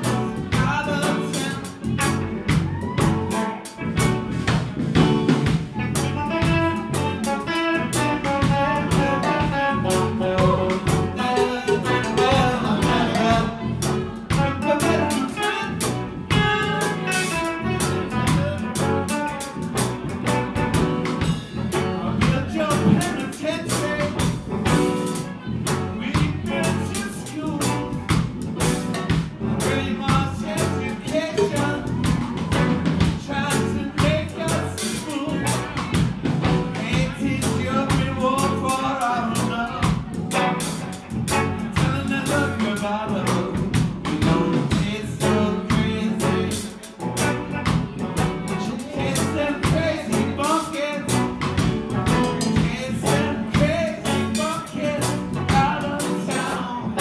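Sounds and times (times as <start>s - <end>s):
drum kit steady beat: 0.0s - 57.0s
live rock band playing: 0.0s - 57.0s.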